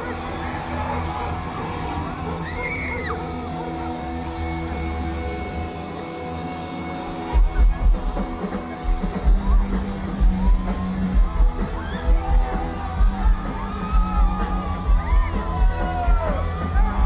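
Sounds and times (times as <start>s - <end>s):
rock band playing: 0.0s - 17.0s.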